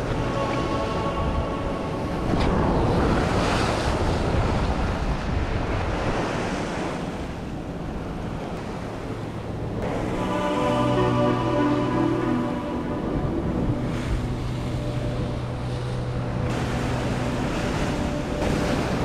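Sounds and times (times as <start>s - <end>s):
wind buffeting microphone: 0.0s - 10.3s.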